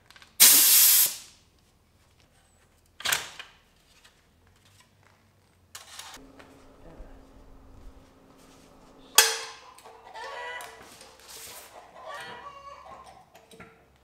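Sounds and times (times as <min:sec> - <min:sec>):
air impact wrench whirring: 0:00.4 - 0:01.2.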